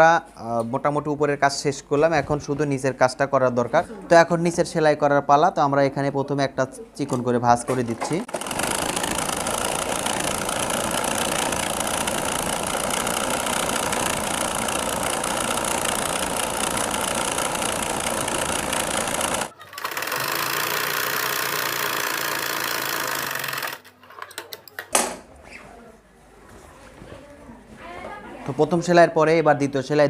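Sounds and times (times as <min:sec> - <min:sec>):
sewing machine running: 0:07.8 - 0:24.2.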